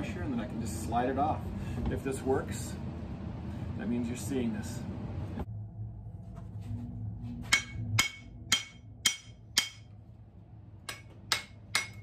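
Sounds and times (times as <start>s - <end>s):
hammer striking axe head: 7.5s - 10.0s, 10.8s - 12.0s.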